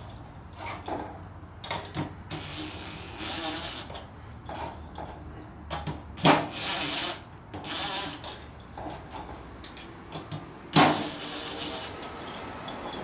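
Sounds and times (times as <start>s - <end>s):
impact driver bursts: 10.7s - 12.0s.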